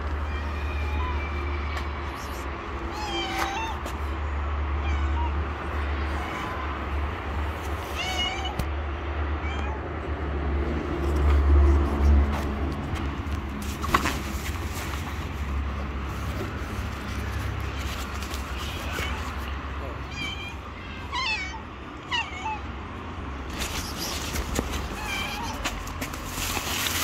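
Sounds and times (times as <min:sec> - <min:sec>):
cat meowing: 0:00.0 - 0:06.8, 0:07.8 - 0:09.9, 0:17.6 - 0:22.8, 0:23.7 - 0:26.0.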